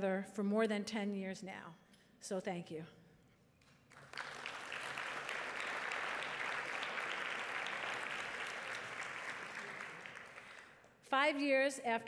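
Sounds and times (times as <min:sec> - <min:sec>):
audience applauding: 0:03.9 - 0:10.8.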